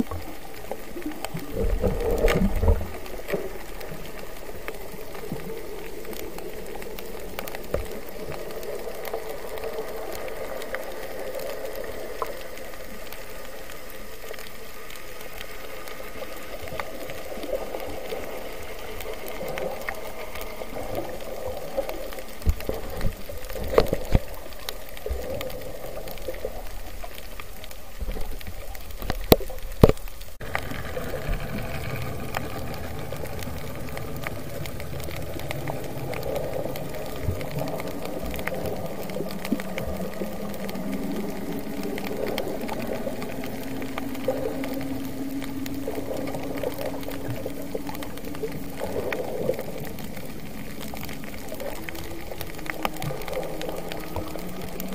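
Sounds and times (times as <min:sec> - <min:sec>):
underwater hiss and hum: 0:00.0 - 0:54.9
low rumble: 0:17.1 - 0:54.9.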